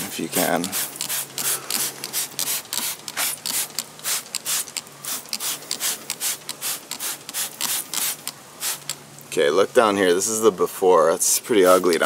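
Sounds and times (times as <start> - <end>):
spray bottle squirting: 0.4 - 9.0.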